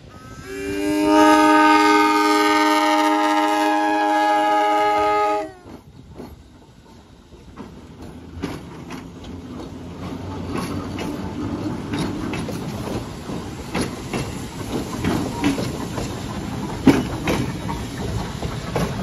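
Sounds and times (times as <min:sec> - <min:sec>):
train cars rumbling past: 0:00.0 - 0:19.0
train horn: 0:00.1 - 0:05.8
wheels clicking over rail joints: 0:04.6 - 0:19.0.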